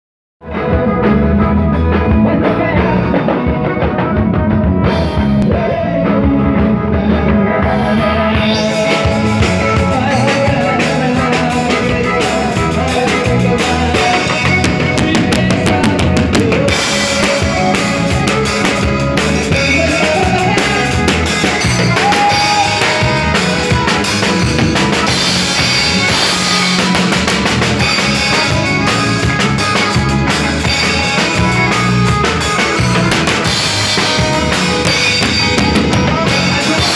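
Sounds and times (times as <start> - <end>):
man singing into microphone: 0.4 - 4.4, 5.2 - 24.0, 34.8 - 36.9
electric bass: 0.4 - 36.9
accordion: 0.5 - 36.9
drum kit and cymbals: 0.5 - 36.9.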